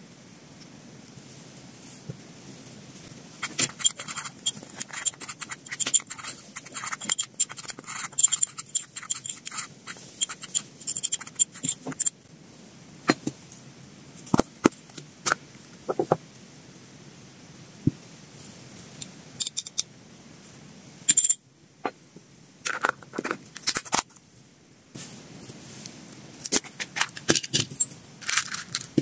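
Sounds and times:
metal spoon scraping ceramic bowl: 0:03.4 - 0:12.1.

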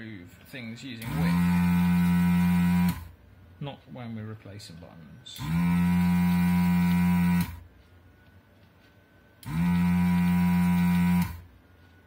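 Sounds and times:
desoldering gun vacuum pump buzzing: 0:01.0 - 0:03.2, 0:05.4 - 0:07.6, 0:09.4 - 0:11.5.

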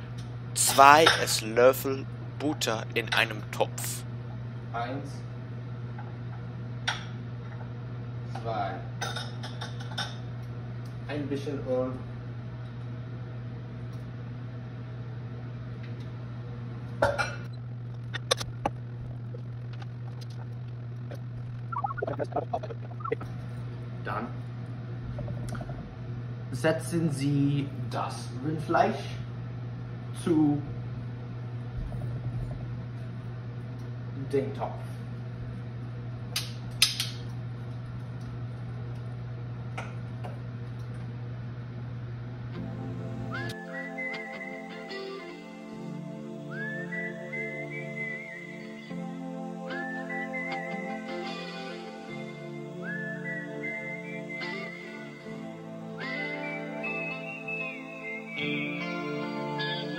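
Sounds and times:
steady low hum: 0:00.0 - 0:59.9
dishes clinking: 0:09.0 - 0:10.2.

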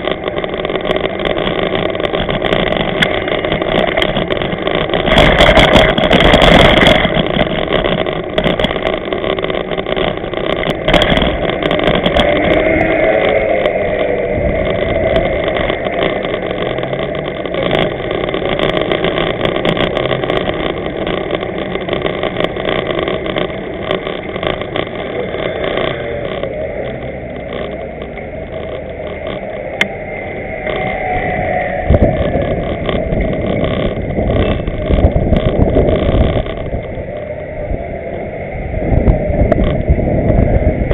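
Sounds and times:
wind and road noise: 0:00.0 - 0:40.9
knocks and rattles from bumps: 0:31.9 - 0:37.0.

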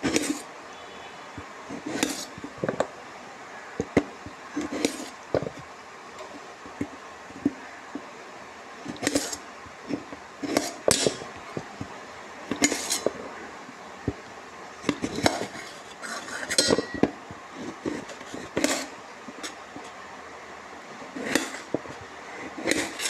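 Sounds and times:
metal pots and utensils clattering: 0:12.5 - 0:13.2, 0:14.9 - 0:17.2.

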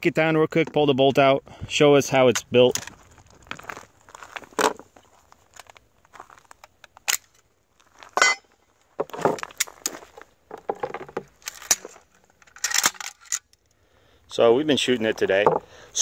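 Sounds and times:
rifle parts clicking and clacking: 0:06.5 - 0:07.5, 0:09.1 - 0:13.8.

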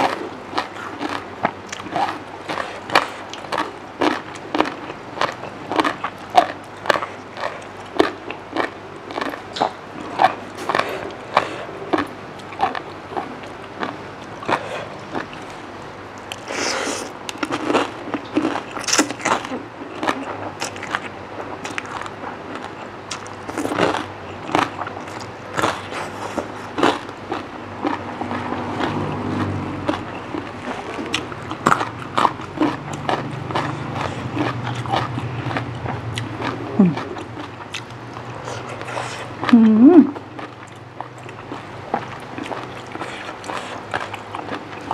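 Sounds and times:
wet chewing and smacking: 0:00.0 - 0:44.9.

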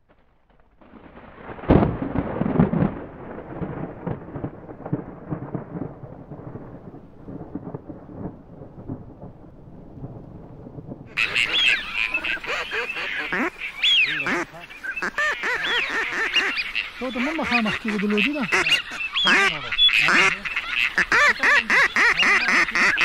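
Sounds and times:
thunder crack and rumble: 0:00.0 - 0:12.0
waterfowl calls: 0:11.2 - 0:23.0.

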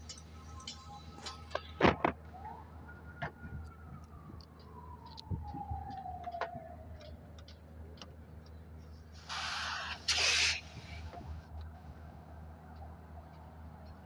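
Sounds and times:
refrigerant hissing: 0:09.2 - 0:11.1.

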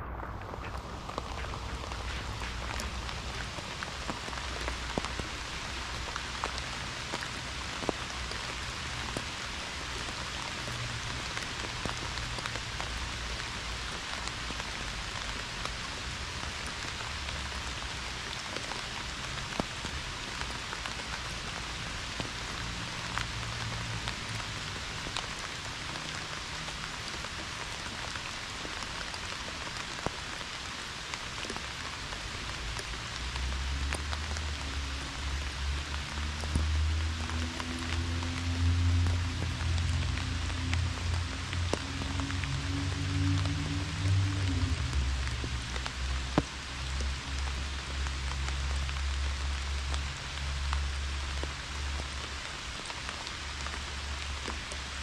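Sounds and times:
low rumble: 0:00.0 - 0:04.7
pouring rain: 0:00.0 - 0:55.0.

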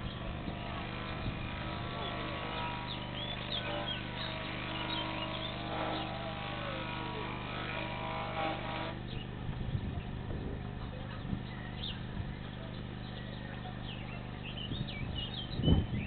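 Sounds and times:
constant low hum: 0:00.0 - 0:16.0
engine drone: 0:00.0 - 0:16.0
bird chirps: 0:02.0 - 0:06.2, 0:09.0 - 0:10.2, 0:10.8 - 0:16.0.

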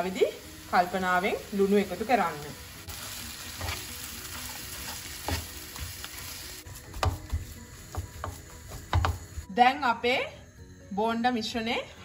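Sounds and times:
gentle sizzle: 0:00.0 - 0:09.5
spoon knocking against pan: 0:06.9 - 0:09.4.

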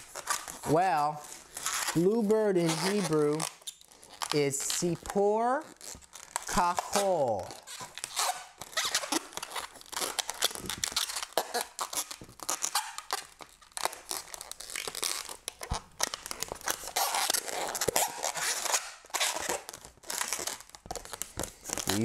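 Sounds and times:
balloons squeaking and rubbing: 0:00.0 - 0:22.0.

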